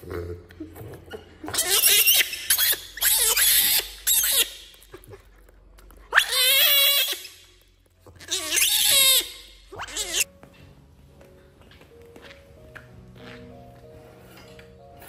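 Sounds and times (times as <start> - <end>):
macaque crying out: 6.1 - 7.4, 8.2 - 10.3.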